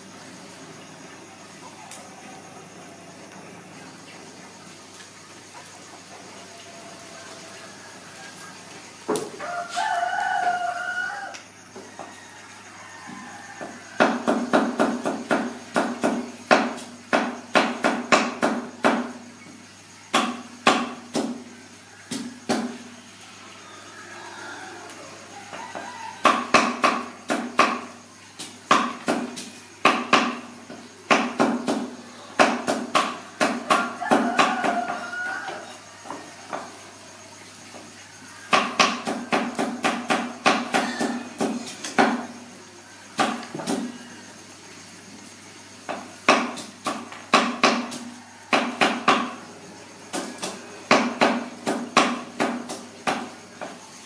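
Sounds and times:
sharp knocks: 13.6 - 19.2, 20.1 - 21.4, 26.2 - 27.9, 28.7 - 35.0, 38.5 - 42.2, 45.9 - 49.4, 50.1 - 53.8.

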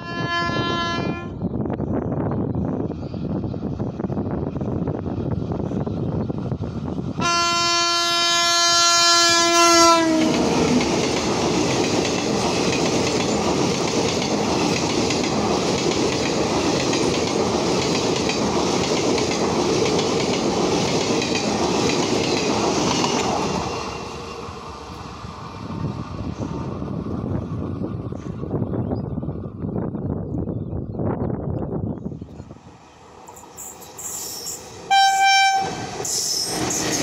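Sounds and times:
locomotive horn: 0.0 - 1.3, 7.2 - 10.6, 34.9 - 35.9
train wheel-and-rail noise: 0.0 - 37.0.

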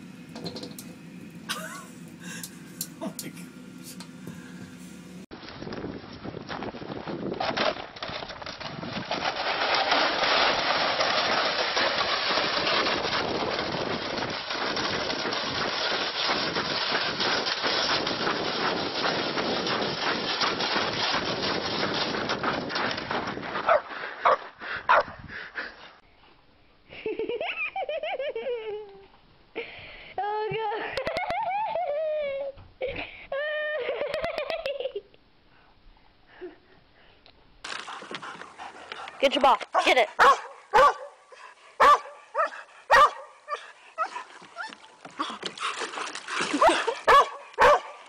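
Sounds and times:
person speaking: 2.9 - 4.0, 39.1 - 40.2
sled scraping over snow: 5.8 - 24.4, 44.0 - 48.0
dog barking: 23.7 - 25.1, 39.8 - 41.2, 41.8 - 43.4, 46.6 - 48.0.

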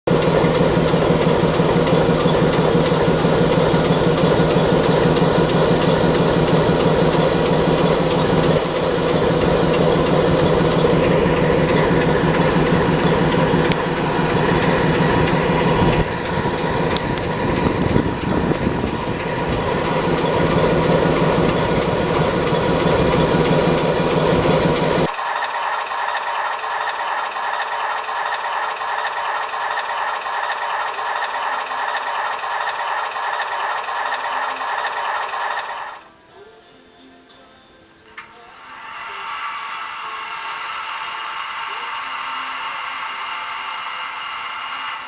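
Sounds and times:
diesel locomotive engine idling: 0.1 - 36.0.

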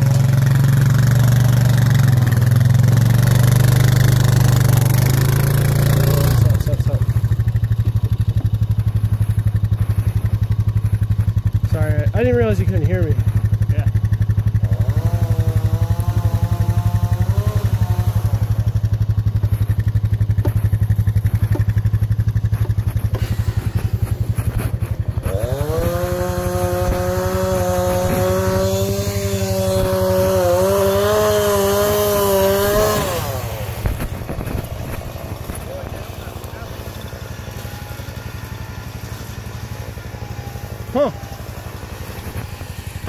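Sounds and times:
engine revving high: 0.0 - 7.4, 13.7 - 19.8, 23.0 - 43.0
small engine idling: 0.0 - 43.0.

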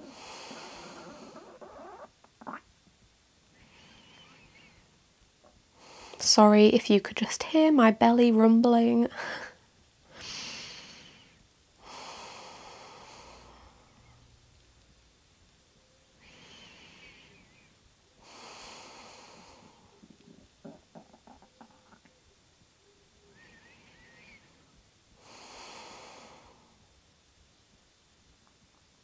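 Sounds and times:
woman breathing softly: 0.0 - 1.6, 3.6 - 4.9, 9.1 - 14.2, 16.2 - 20.4, 23.3 - 26.8.

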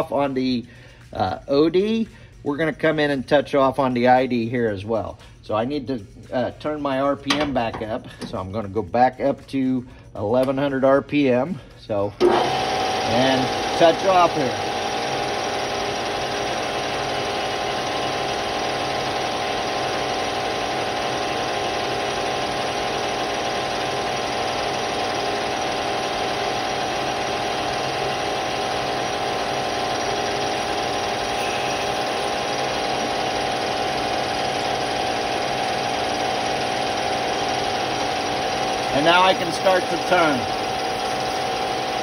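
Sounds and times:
lathe spindle humming with whine: 12.2 - 42.0.

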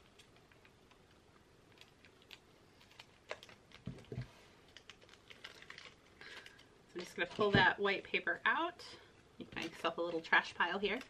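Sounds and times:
scissors snipping foil bag: 4.7 - 7.5, 9.6 - 11.0.

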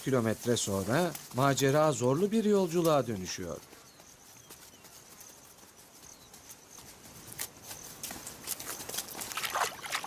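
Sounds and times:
cheetahs lapping water: 9.2 - 10.0.

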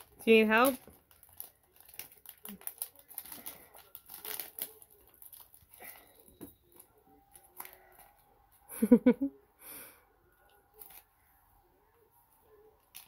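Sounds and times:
foil packet crinkling and tearing: 0.0 - 8.2.

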